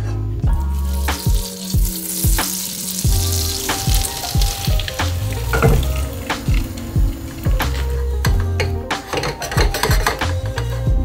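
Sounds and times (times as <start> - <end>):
background music with steady beat: 0.0 - 11.0
butter sizzling in a frying pan: 0.5 - 10.4
egg poured into pan: 0.7 - 8.3.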